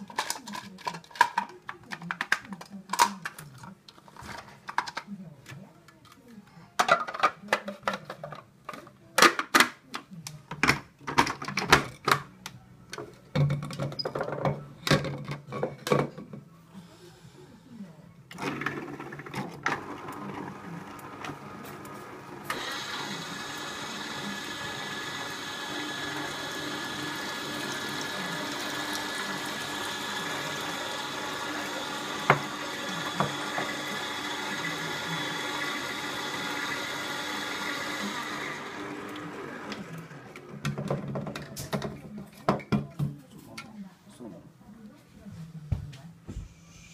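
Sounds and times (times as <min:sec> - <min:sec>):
plastic parts clicking and knocking: 0:00.0 - 0:06.2, 0:06.8 - 0:16.4, 0:40.4 - 0:43.1
juicer motor humming with whine: 0:18.3 - 0:40.7.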